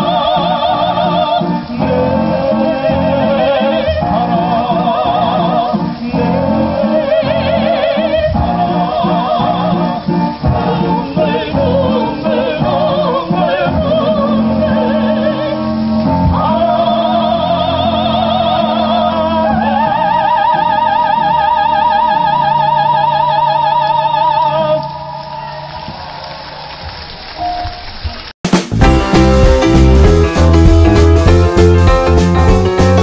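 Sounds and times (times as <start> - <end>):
man and woman singing duet: 0.0 - 25.0
instrumental accompaniment: 0.0 - 33.0.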